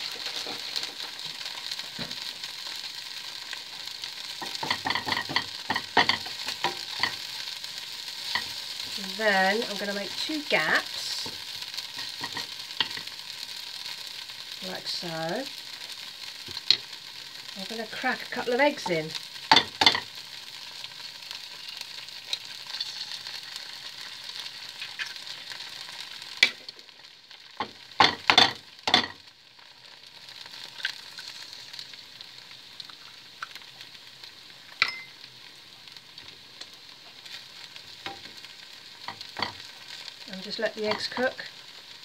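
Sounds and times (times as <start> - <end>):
food sizzling in a frying pan: 0.0 - 42.0
eggs cracked against a pan: 4.4 - 7.3, 19.3 - 20.2, 27.6 - 29.2, 39.0 - 39.8.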